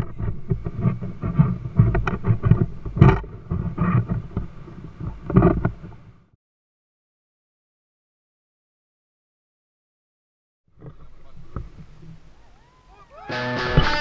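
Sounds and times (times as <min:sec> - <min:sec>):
wind buffeting microphone: 0:00.0 - 0:06.3.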